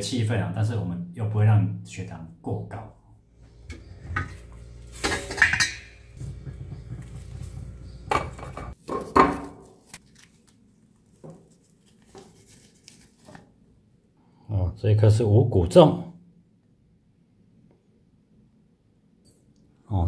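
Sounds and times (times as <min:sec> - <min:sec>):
low steady hum: 0:03.3 - 0:08.8
metal cooker lid clattering: 0:05.0 - 0:07.2.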